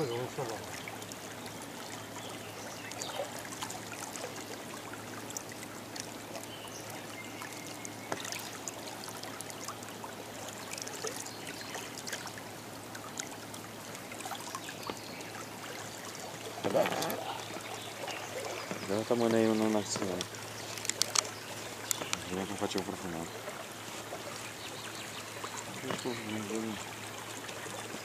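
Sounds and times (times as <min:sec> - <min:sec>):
water lapping around boat: 0:00.0 - 0:28.0
light clicks and knocks: 0:18.6 - 0:22.9, 0:25.7 - 0:26.2.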